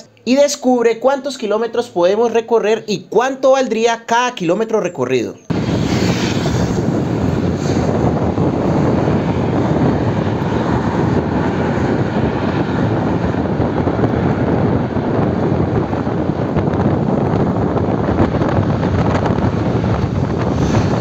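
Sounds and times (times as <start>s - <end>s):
road noise: 0.0s - 21.0s
wind rushing over microphone: 5.5s - 21.0s.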